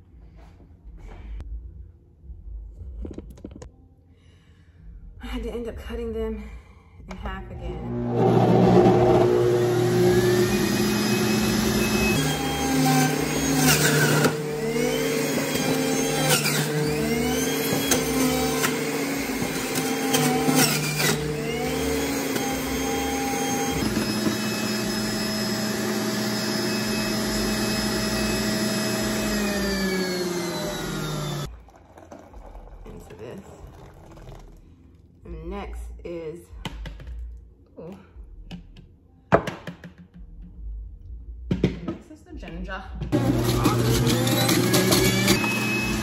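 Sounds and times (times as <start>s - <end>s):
juicer motor running: 7.8s - 32.8s, 43.2s - 46.0s.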